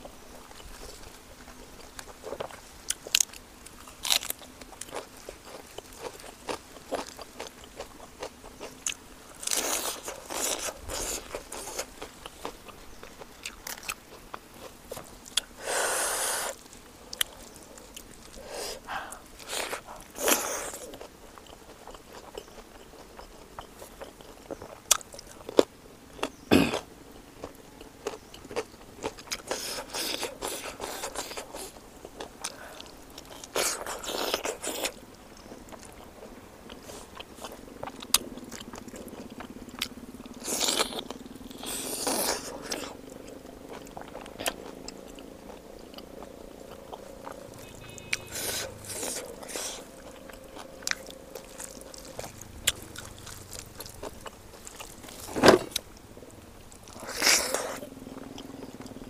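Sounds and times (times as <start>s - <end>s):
person chewing food: 0.2s - 59.0s.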